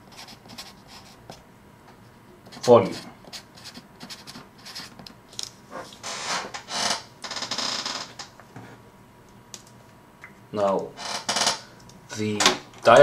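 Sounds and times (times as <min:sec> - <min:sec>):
pen scratching on paper: 0:00.1 - 0:01.2, 0:02.5 - 0:04.9.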